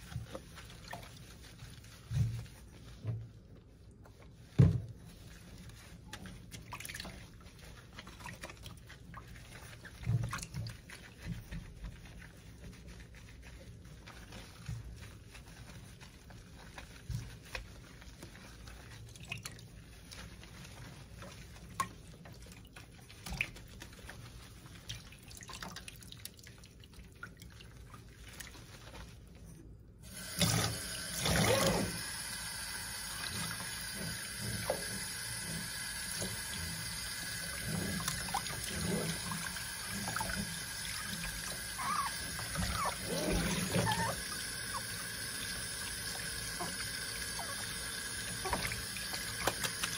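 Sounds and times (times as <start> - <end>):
small wet splashes: 0.0 - 11.8, 12.4 - 29.3, 36.1 - 49.9
tap water running into sink: 30.1 - 49.9.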